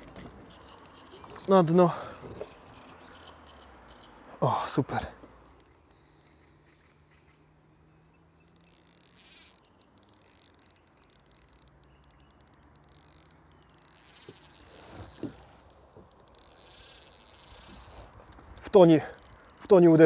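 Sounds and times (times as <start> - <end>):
insects chirring: 8.3 - 20.0.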